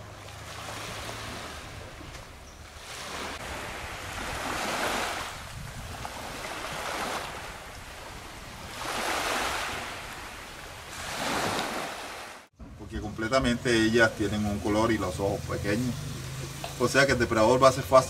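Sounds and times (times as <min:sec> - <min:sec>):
small waves washing on shore: 0:00.0 - 0:12.6.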